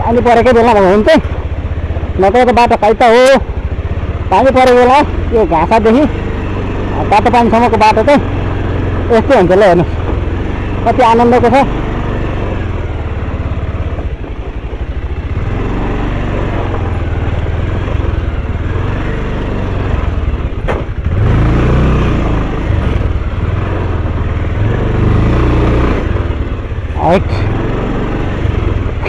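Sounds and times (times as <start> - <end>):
motorcycle engine running: 0.0 - 29.0
sharp knock: 20.6 - 21.0.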